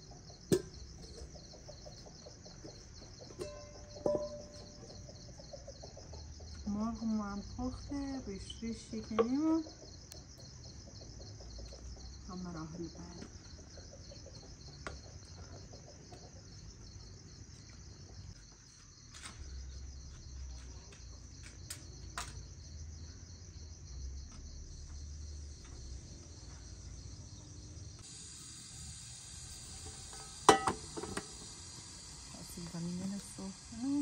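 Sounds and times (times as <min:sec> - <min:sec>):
gas burner hissing: 0:00.0 - 0:05.2, 0:25.7 - 0:34.0
crickets chirping: 0:00.0 - 0:34.0.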